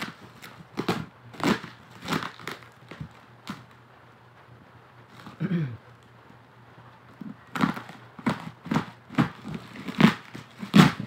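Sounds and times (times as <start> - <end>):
plastic packaging crinkling and tearing: 0.0 - 3.8, 7.4 - 11.0.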